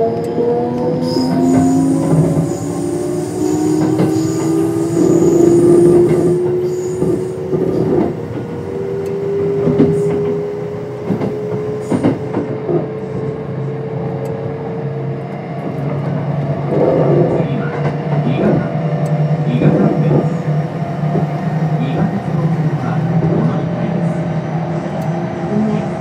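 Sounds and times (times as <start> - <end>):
electric train motors whining: 0.0 - 14.4.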